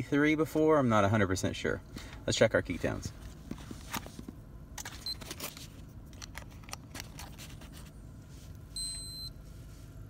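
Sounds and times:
low steady rumble: 0.0s - 10.0s
short high beep from meter: 8.7s - 9.4s.

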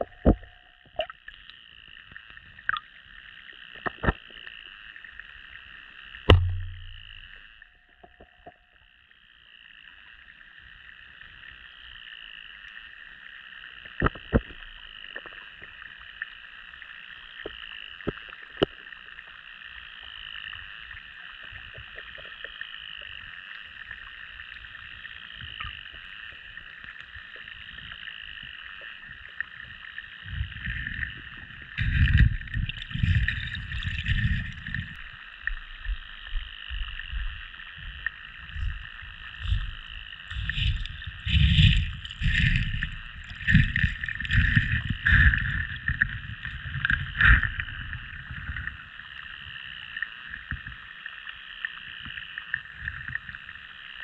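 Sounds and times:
water sloshing and knocking: 6.3s - 8.6s, 31.8s - 35.0s, 39.4s - 48.6s.

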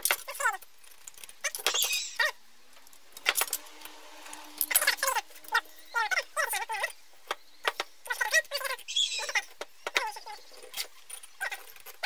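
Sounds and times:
scriber scratching steel: 0.9s - 6.9s.

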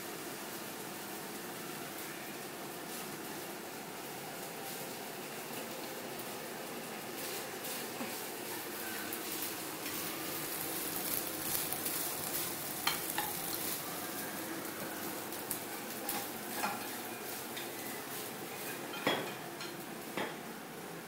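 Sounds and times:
stir-fry sizzling in a pan: 0.0s - 21.0s.

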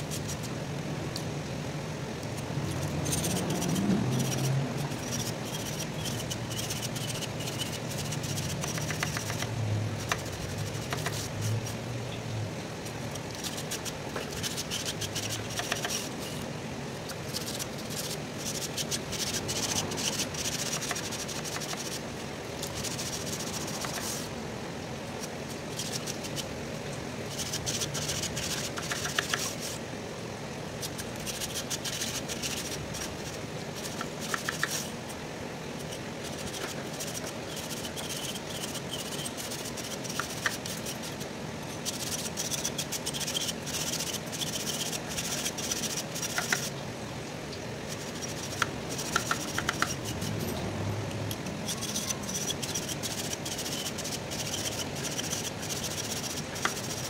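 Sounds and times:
low background noise: 0.0s - 57.0s
metal blade scratching: 2.7s - 9.5s, 35.8s - 41.1s, 51.3s - 57.0s.

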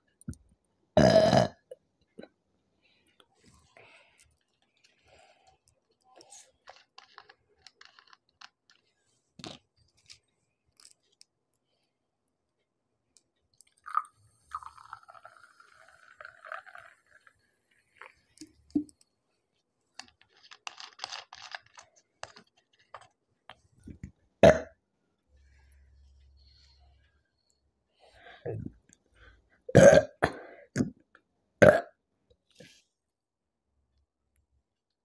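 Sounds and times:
carbonation fizzing: 13.8s - 17.4s
soda pouring into glass: 13.8s - 18.2s.

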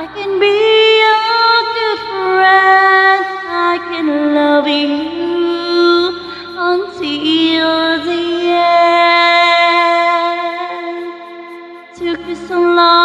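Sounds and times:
backing track music: 9.6s - 13.0s.

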